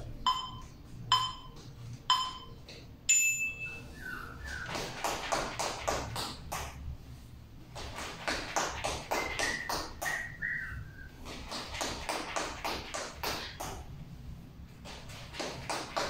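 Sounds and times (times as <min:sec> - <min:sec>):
sneakers tapping on tile floor: 0:04.4 - 0:06.8, 0:07.7 - 0:10.3, 0:11.2 - 0:13.9, 0:14.8 - 0:16.0.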